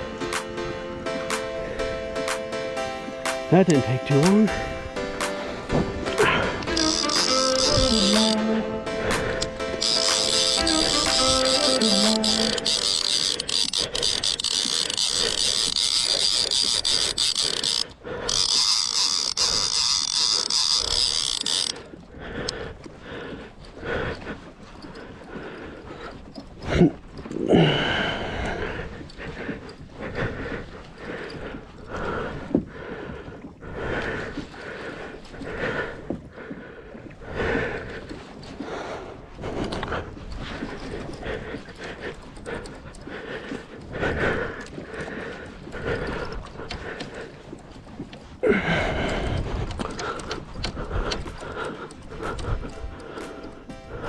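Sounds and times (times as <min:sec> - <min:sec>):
person breathing hard: 0:05.3 - 0:54.0
fishing reel ratcheting: 0:06.1 - 0:22.6.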